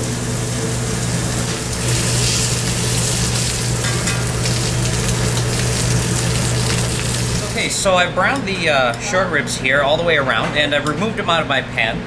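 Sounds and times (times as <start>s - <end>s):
meat sizzling in a pan: 0.3s - 7.6s.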